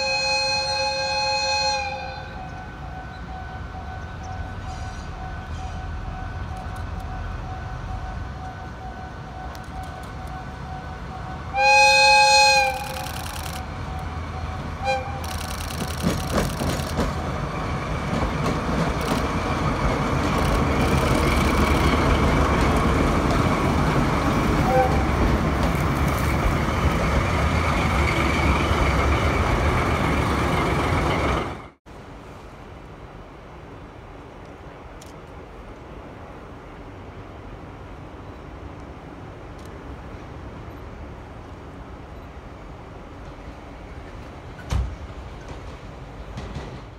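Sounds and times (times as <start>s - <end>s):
locomotive horn blasts: 0.0s - 13.1s, 13.8s - 15.4s, 24.6s - 25.2s
locomotive engine passing: 0.0s - 31.8s
sharp clicks: 12.7s - 13.7s, 15.2s - 17.2s, 20.3s - 22.0s.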